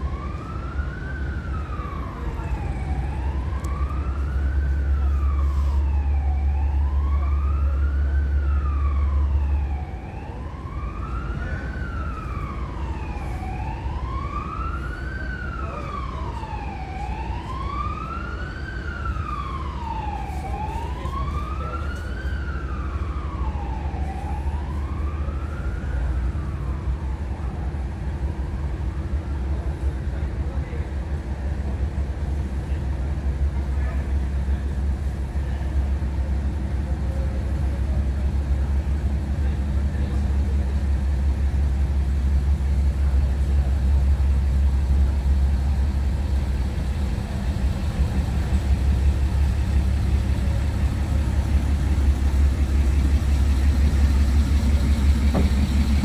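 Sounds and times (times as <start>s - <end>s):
emergency siren wailing: 0.0s - 56.0s
low engine rumble: 0.0s - 56.0s.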